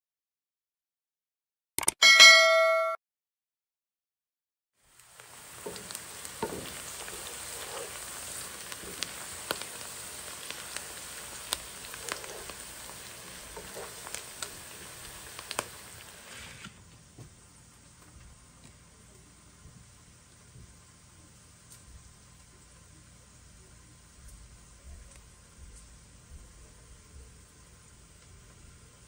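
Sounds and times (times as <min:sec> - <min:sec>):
onions sizzling in hot oil: 0:04.8 - 0:16.8
oil crackling pops: 0:05.0 - 0:16.8.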